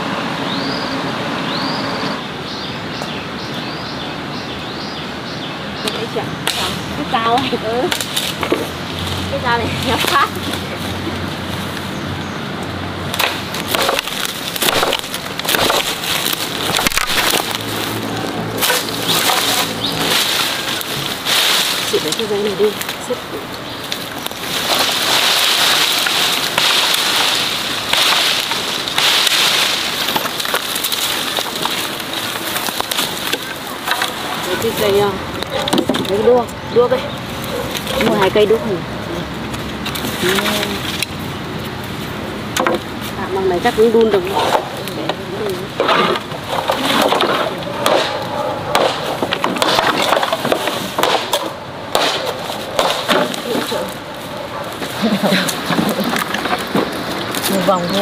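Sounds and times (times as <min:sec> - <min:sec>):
dry brush crackling underfoot: 0:05.4 - 0:58.0
wooden poles knocking: 0:07.9 - 0:08.8, 0:13.1 - 0:36.4, 0:42.5 - 0:43.1, 0:43.9 - 0:58.0.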